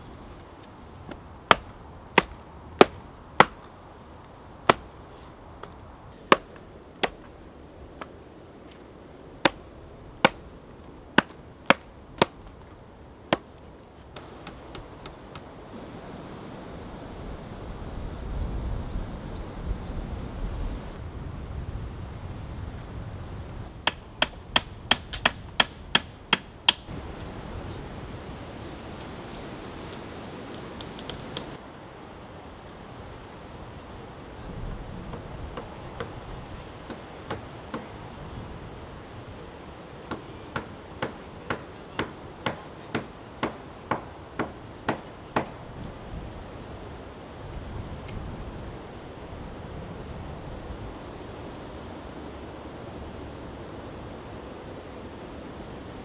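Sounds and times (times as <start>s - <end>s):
hatchet chopping wood: 1.1s - 3.7s, 4.6s - 5.0s, 5.6s - 7.3s, 8.0s - 8.8s, 9.4s - 10.5s, 11.2s - 12.7s, 13.3s - 15.5s, 23.8s - 26.9s, 36.8s - 38.0s, 40.1s - 45.6s.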